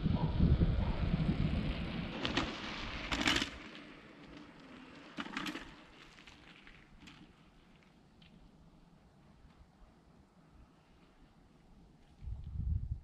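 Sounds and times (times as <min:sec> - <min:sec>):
wind rumbling on microphone: 0:00.0 - 0:03.3, 0:12.1 - 0:13.0.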